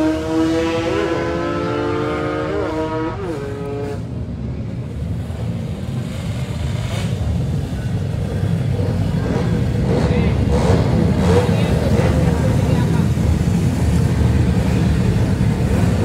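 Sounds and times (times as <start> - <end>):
motorcycle engine accelerating: 0.0 - 4.1.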